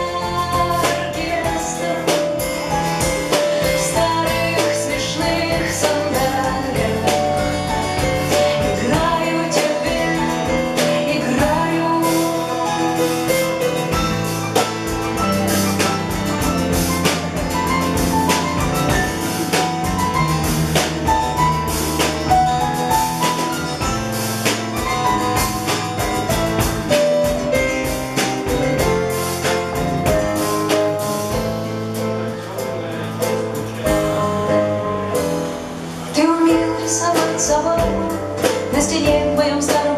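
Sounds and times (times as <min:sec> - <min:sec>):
woman singing: 0:00.0 - 0:13.6, 0:36.1 - 0:39.9
drum kit: 0:00.0 - 0:39.9
live band playing: 0:00.0 - 0:39.9.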